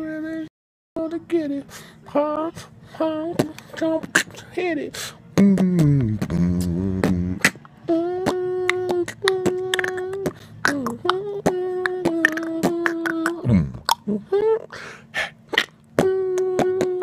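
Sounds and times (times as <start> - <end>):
beatboxing: 3.3 - 4.5, 5.3 - 17.0.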